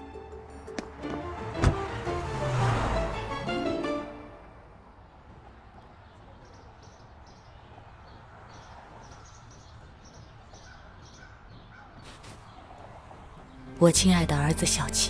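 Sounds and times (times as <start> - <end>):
small birds chirping: 5.8 - 14.1.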